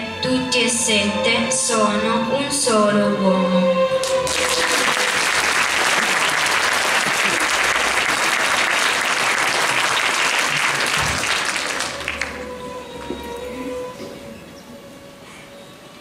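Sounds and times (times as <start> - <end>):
audience applauding: 4.0 - 12.6.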